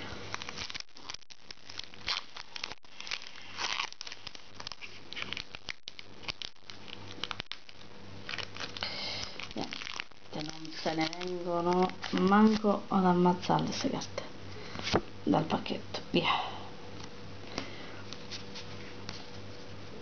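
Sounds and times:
foil wrapper crinkling and tearing: 0.0s - 12.9s.

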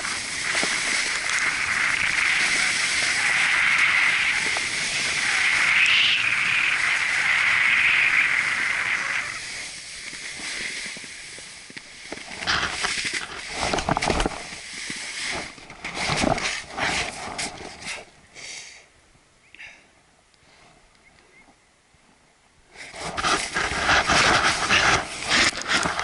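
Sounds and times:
snowboard hissing on snow: 0.0s - 13.7s
crunching and scraping in snow: 0.0s - 18.1s, 22.8s - 26.0s.

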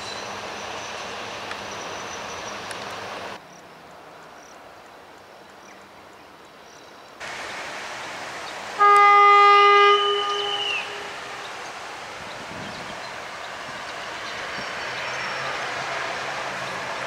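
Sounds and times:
train noise: 0.0s - 4.8s, 7.2s - 17.0s
locomotive horn blowing: 8.8s - 11.6s.

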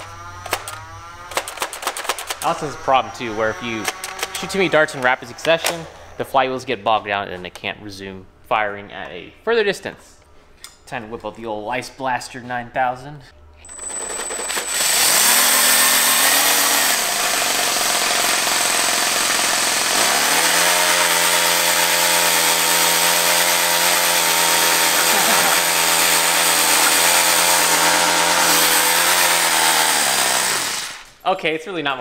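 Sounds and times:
model engine revving roughly: 2.5s - 5.2s, 14.6s - 31.1s.

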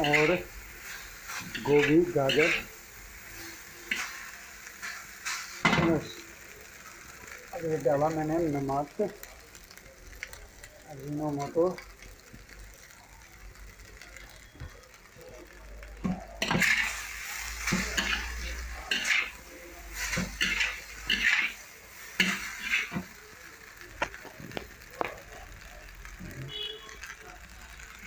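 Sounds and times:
spatula scraping a wok: 0.0s - 6.2s, 16.1s - 23.2s
light sizzle: 0.0s - 28.0s.

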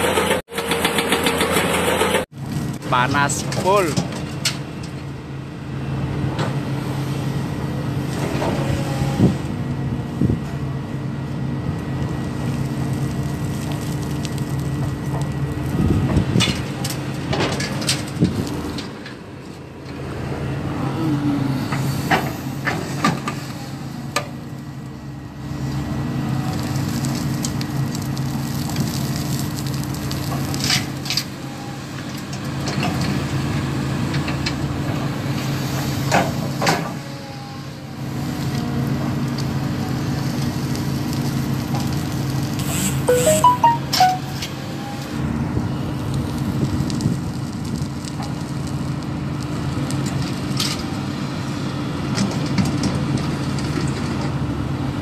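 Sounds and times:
excavator diesel engine running: 0.0s - 3.6s.

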